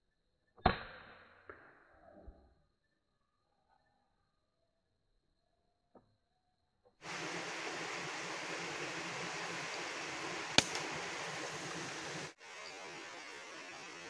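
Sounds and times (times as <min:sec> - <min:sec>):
steady background hiss: 0:07.0 - 0:14.0
air rifle shot: 0:10.5 - 0:11.2.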